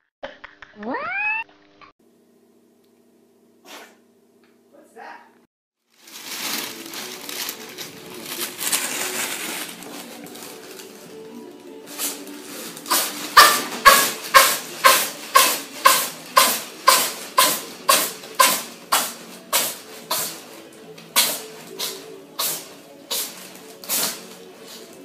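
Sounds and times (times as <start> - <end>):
cat sneezing: 3.6 - 4.0, 12.9 - 20.4, 21.2 - 24.3.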